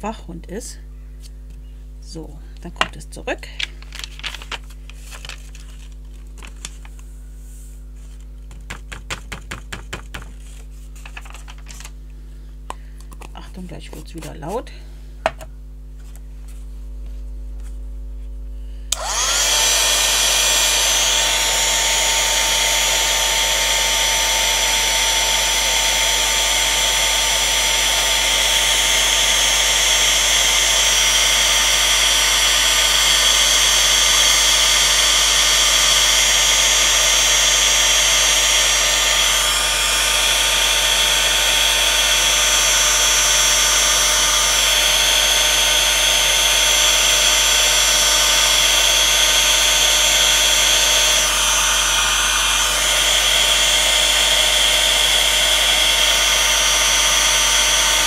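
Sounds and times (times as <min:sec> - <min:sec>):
heat tool whine and rushing air: 0:18.9 - 0:58.0.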